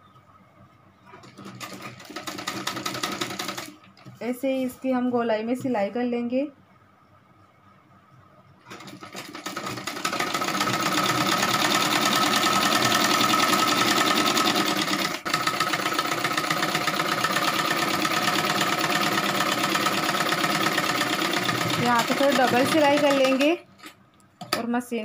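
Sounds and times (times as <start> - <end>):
sewing machine stitching: 1.1 - 3.8, 8.6 - 23.9.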